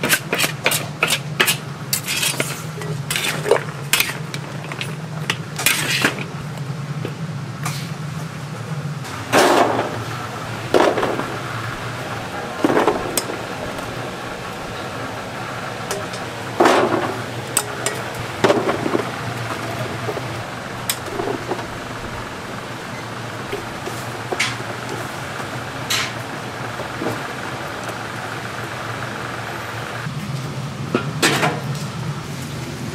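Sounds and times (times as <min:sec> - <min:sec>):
metal ladle clanking and scraping: 0:00.0 - 0:06.4, 0:12.5 - 0:14.0, 0:15.8 - 0:28.0
steady low hum: 0:00.0 - 0:32.9.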